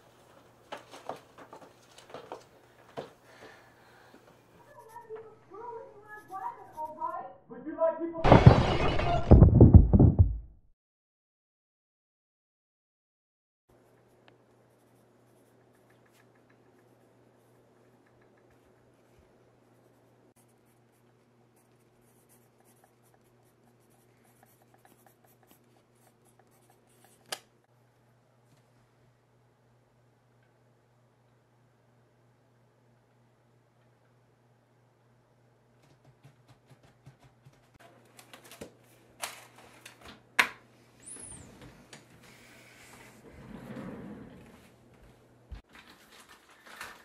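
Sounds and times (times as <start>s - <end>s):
pen scratching on paper: 4.7s - 5.2s, 6.1s - 6.9s, 13.7s - 27.4s.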